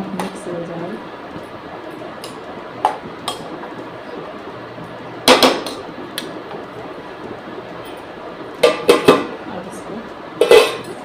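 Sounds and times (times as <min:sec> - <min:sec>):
metal pot lid clinking: 0:10.4 - 0:11.0.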